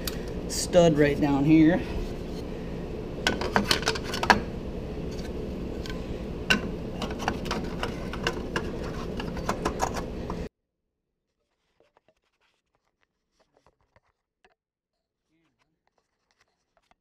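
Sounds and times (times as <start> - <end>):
steady low hum: 0.0 - 10.5.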